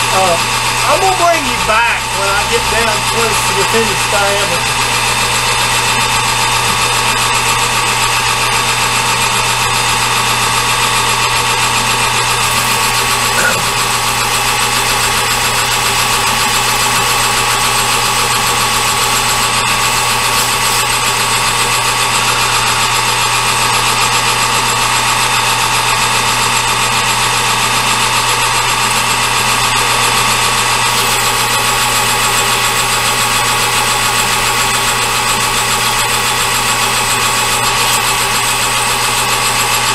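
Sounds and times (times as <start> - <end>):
metal lathe running: 0.0 - 39.9.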